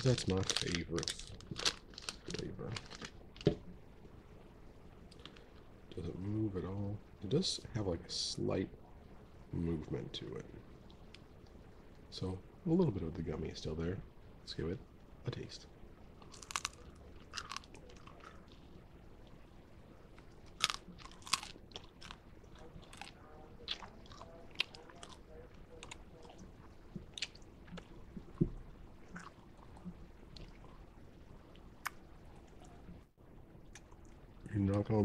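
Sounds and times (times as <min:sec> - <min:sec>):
chewing crunchy candy: 0:00.0 - 0:03.2, 0:16.2 - 0:18.7, 0:20.5 - 0:28.4.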